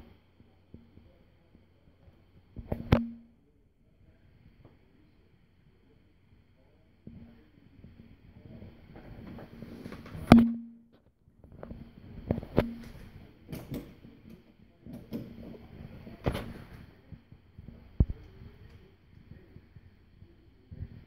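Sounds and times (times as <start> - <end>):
brief low ringing: 2.9 - 3.3, 10.3 - 10.9.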